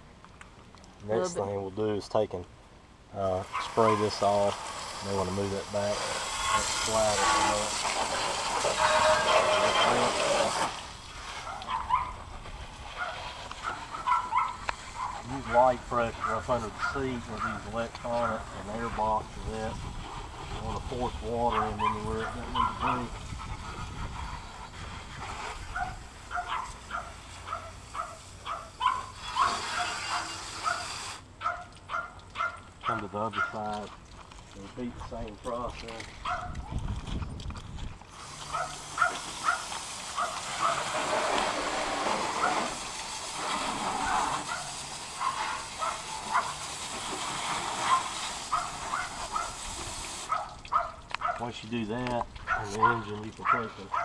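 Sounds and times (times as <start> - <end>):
hose nozzle spraying water: 3.2 - 12.1, 12.7 - 31.3, 38.1 - 51.6
dog barking: 11.4 - 12.2, 13.0 - 15.2, 16.2 - 17.6, 21.5 - 23.0, 25.7 - 33.6, 36.2 - 36.6, 38.5 - 40.9, 44.1 - 46.6, 47.8 - 49.6, 50.3 - 51.4, 52.4 - 54.0.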